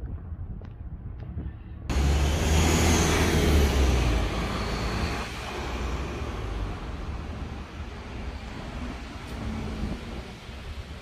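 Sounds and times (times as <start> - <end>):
vehicle passing by: 1.9 - 10.3.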